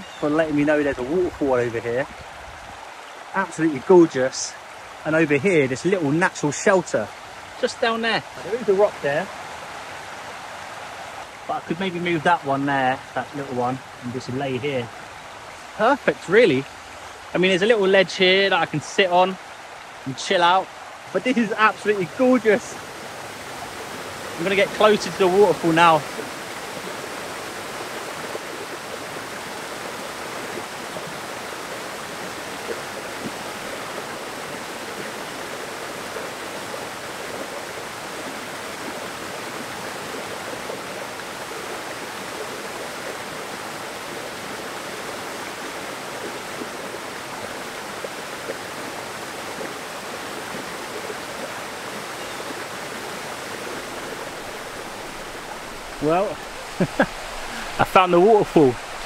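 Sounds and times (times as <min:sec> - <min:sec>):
waterfall splashing onto rocks: 0:00.0 - 0:59.0.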